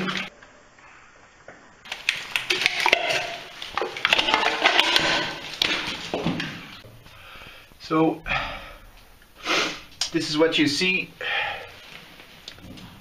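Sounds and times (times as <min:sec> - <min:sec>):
rocks clattering and scraping: 0:01.9 - 0:06.8.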